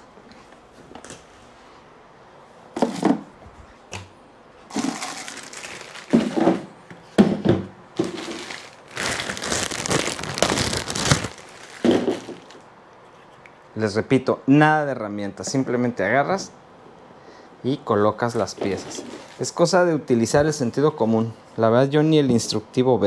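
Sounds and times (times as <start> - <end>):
plastic bag crinkling: 4.7 - 6.7, 8.0 - 12.6, 18.7 - 19.5.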